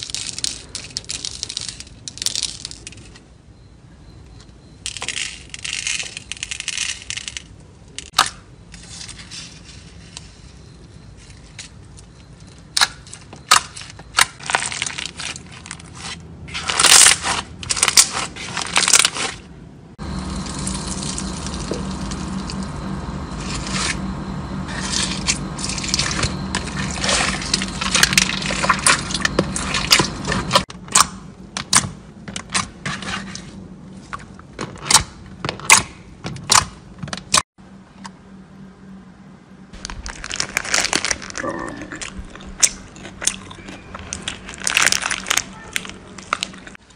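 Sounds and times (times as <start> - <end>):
low hum: 19.7 - 31.6, 37.6 - 46.8.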